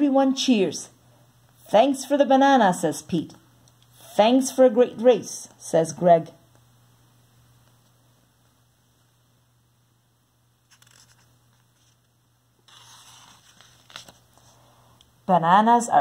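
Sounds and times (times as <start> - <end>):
book page turning: 10.6 - 14.6.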